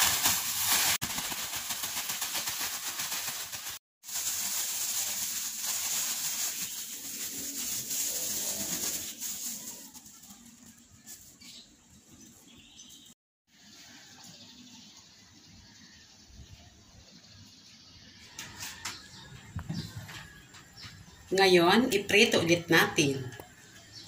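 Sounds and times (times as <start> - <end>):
plastic bag crinkling: 0.0 - 11.4
plastic bag shaken rustling: 0.0 - 11.4.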